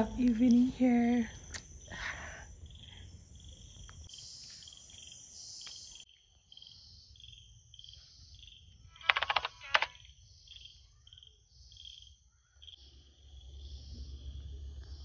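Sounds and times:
crickets chirping: 0.0 - 15.0
sharp clicks: 9.0 - 10.0
faint low rumble: 12.9 - 15.0.

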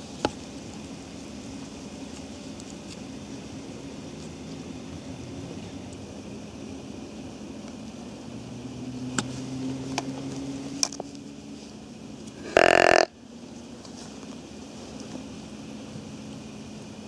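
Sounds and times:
deer call: 12.3 - 13.2.

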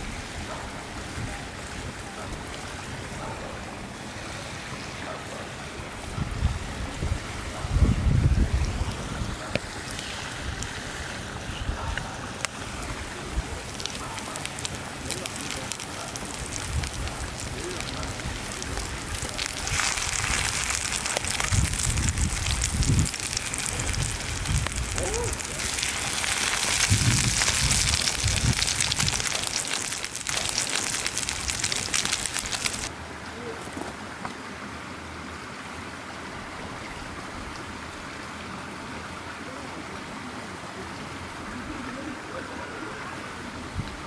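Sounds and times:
creek rushing: 0.0 - 44.0
meat sizzling in oil: 13.7 - 32.9.

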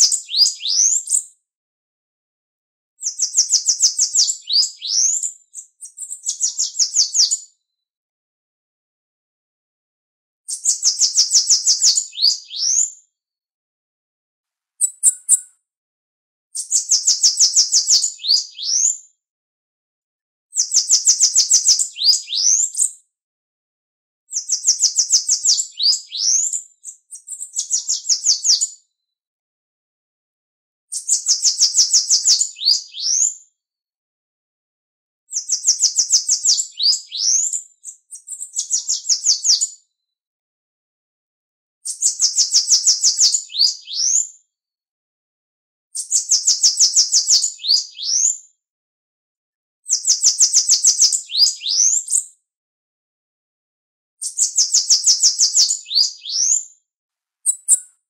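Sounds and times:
bird singing buzzy trills: 14.8 - 15.5, 57.5 - 57.9.

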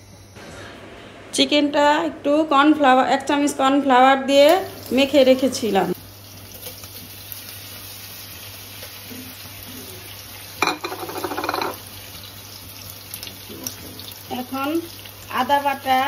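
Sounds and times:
chicken sizzling in hot oil: 4.4 - 16.0.

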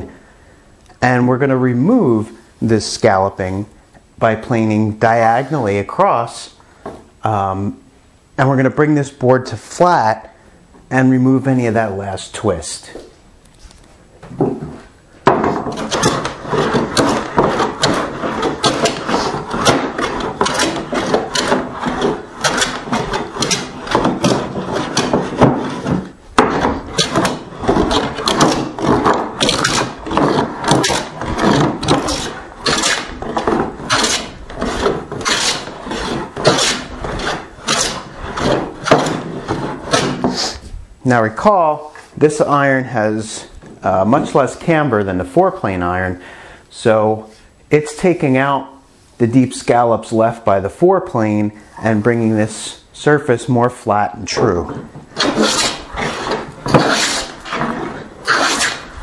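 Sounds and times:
hand plane rasping across wood: 14.7 - 40.6, 54.7 - 59.0.

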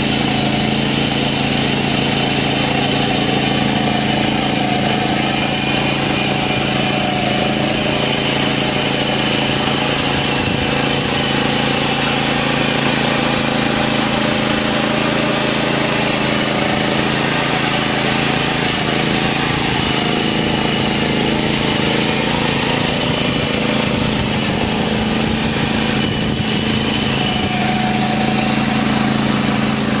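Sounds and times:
tractor petrol engine running: 0.0 - 30.0.

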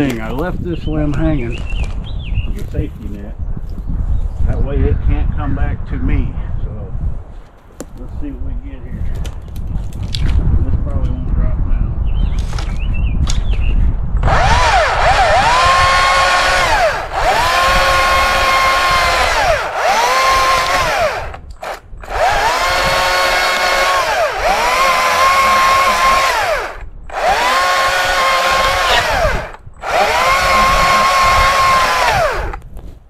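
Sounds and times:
chainsaw revving through wood: 14.2 - 32.6.

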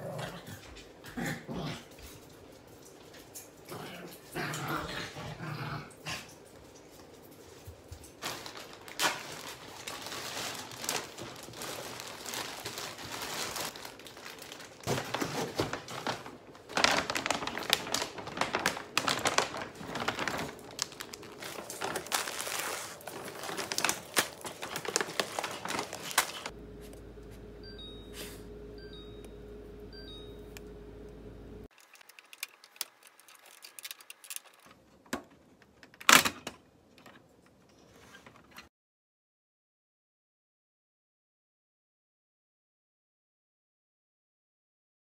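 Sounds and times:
plastic packaging crinkling: 7.8 - 26.5, 31.8 - 34.7
steady hum: 26.5 - 31.7
refrigerator alarm beeps: 26.6 - 31.6.

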